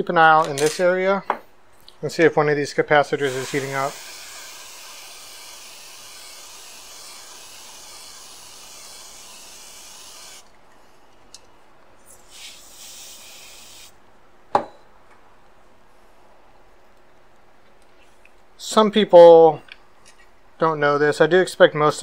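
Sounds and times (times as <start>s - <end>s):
freeze spray hissing: 3.2s - 10.5s, 12.1s - 14.0s.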